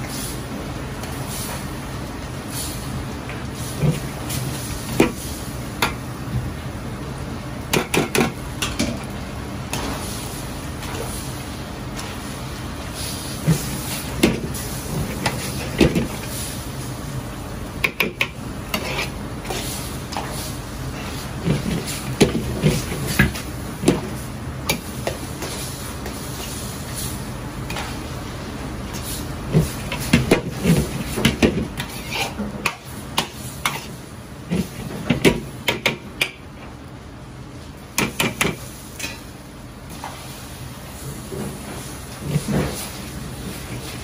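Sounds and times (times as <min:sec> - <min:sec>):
metal ladle scraping a wok: 0:18.7 - 0:19.6, 0:31.8 - 0:32.4.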